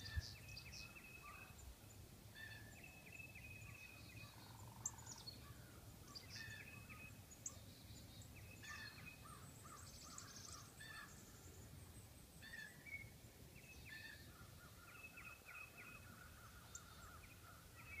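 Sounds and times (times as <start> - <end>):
bird chirps and calls: 6.1 - 11.3.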